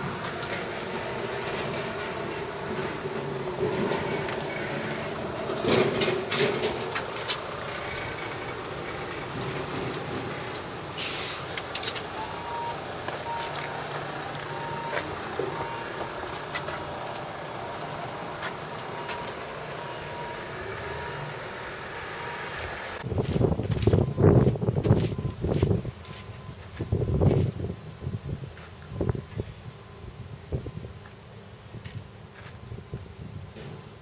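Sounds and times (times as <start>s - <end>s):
truck engine running: 0.0s - 25.3s
short beeping tone: 12.2s - 16.0s.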